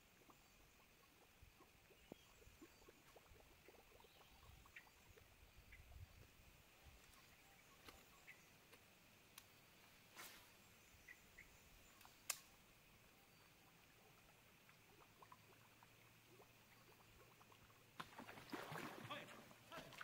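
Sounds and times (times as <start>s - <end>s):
faint outdoor ambience: 0.0s - 20.0s
soft clicks: 12.0s - 12.5s.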